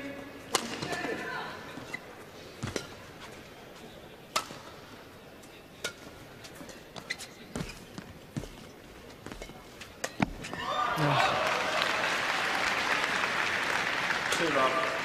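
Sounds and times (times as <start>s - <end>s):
racket striking shuttlecock: 0.5s - 1.1s, 4.3s - 4.7s.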